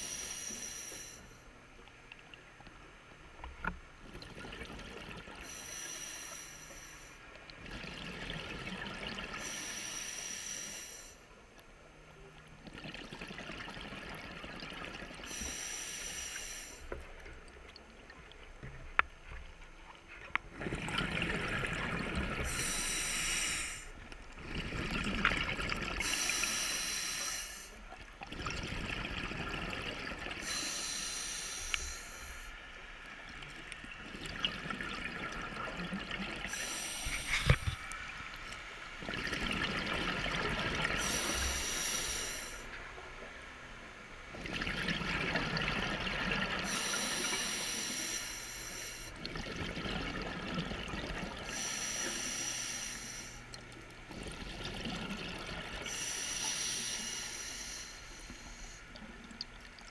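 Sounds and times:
regulator hissing inhale: 0:00.0 - 0:01.4, 0:05.4 - 0:07.2, 0:09.4 - 0:11.2, 0:15.3 - 0:17.0, 0:22.4 - 0:24.1, 0:26.0 - 0:27.8, 0:30.4 - 0:32.6, 0:36.5 - 0:38.0, 0:41.0 - 0:42.8, 0:46.6 - 0:49.2, 0:51.4 - 0:53.5, 0:55.8 - 0:59.2.

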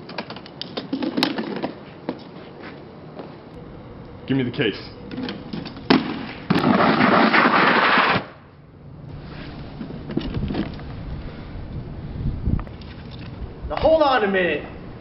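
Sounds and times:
briefcase hitting asphalt: 0:00.1 - 0:02.2, 0:05.2 - 0:08.2
briefcase scraping across ground: 0:09.2 - 0:11.0.

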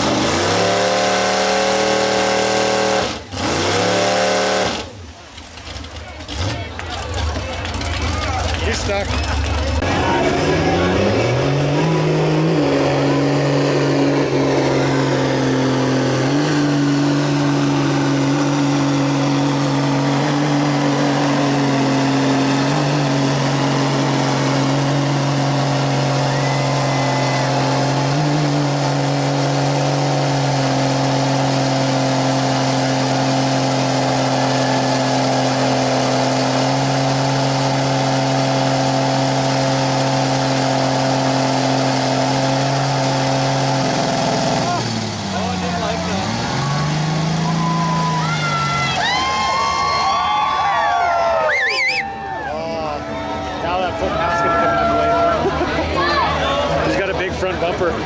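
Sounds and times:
truck engine at high revs: 0:00.0 - 0:58.0
wheels spinning in mud: 0:03.3 - 0:10.9.

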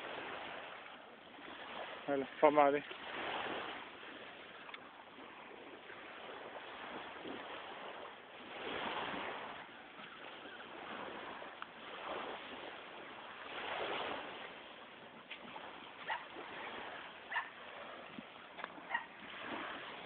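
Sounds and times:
sea waves washing on beach: 0:00.0 - 0:20.0.

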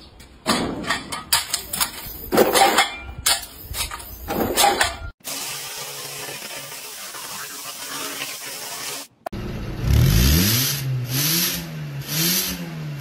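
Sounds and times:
steel nails clattering: 0:00.8 - 0:05.1.

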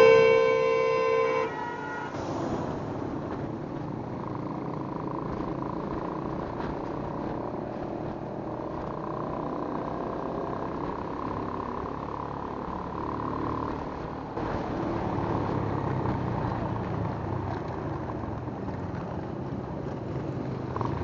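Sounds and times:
vehicle horn blaring: 0:00.0 - 0:02.2
motorcycle engine: 0:02.5 - 0:21.0.

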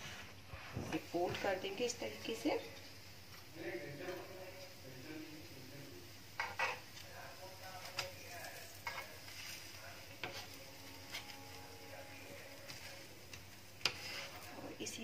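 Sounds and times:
faint sizzling: 0:00.0 - 0:15.0
spatula scraping and tapping on pan: 0:06.4 - 0:07.0, 0:07.8 - 0:09.6, 0:10.2 - 0:11.4, 0:12.7 - 0:14.5.

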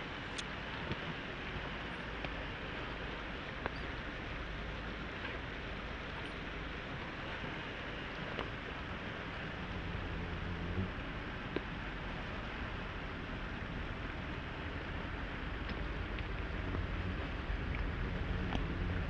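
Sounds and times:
small clicks and ticks: 0:00.3 - 0:01.1, 0:03.5 - 0:04.0, 0:08.2 - 0:08.6, 0:15.6 - 0:19.0.

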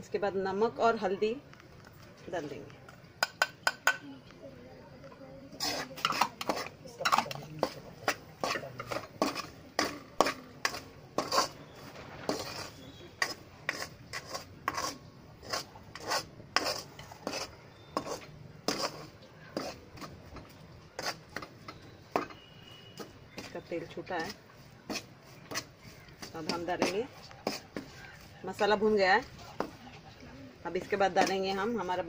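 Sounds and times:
metal spoon scraping a pan: 0:05.5 - 0:29.8, 0:30.7 - 0:32.0
spices frying in oil: 0:05.6 - 0:19.8.

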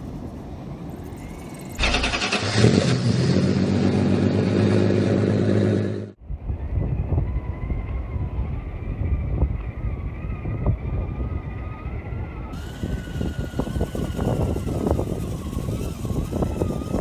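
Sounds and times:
engine running at high revs: 0:01.8 - 0:06.2, 0:12.6 - 0:17.0.

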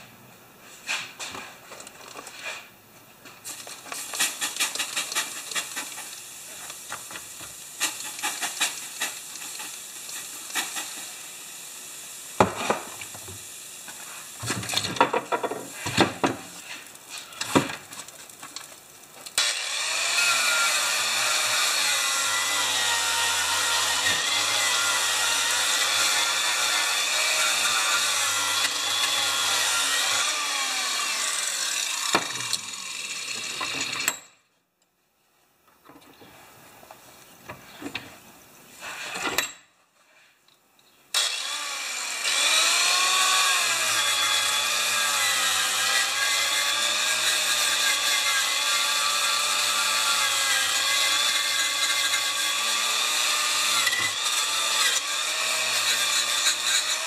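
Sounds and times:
handling knocks and scrapes: 0:00.6 - 0:07.2
angle grinder wire brush on metal: 0:03.4 - 0:11.5, 0:19.4 - 0:34.2, 0:38.8 - 0:39.2, 0:41.2 - 0:57.0.

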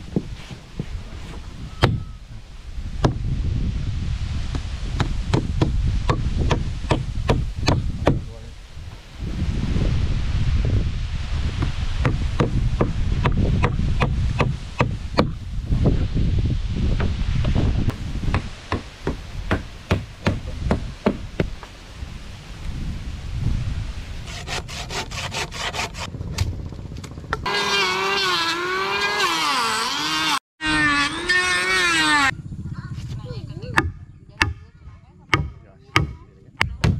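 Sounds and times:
electric planer on wood: 0:27.5 - 0:32.3.

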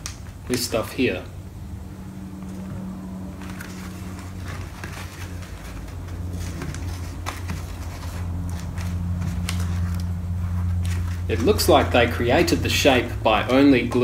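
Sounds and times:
steady low hum: 0:00.0 - 0:14.0
covering peeling with faint crackles: 0:03.4 - 0:11.8.

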